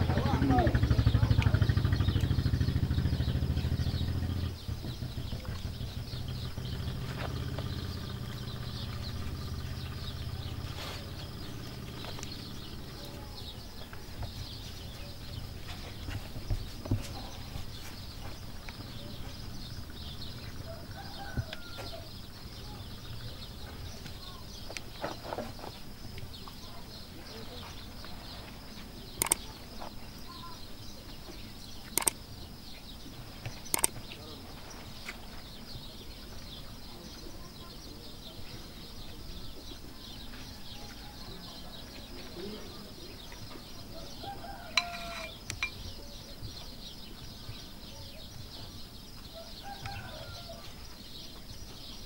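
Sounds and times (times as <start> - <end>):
motorcycle engine passing: 0.0 - 26.6
birds chirping: 0.0 - 52.0
sharp knocks and clicks: 29.2 - 29.4, 31.9 - 32.2, 33.4 - 34.0, 44.8 - 45.8
chickens clucking: 33.2 - 51.8.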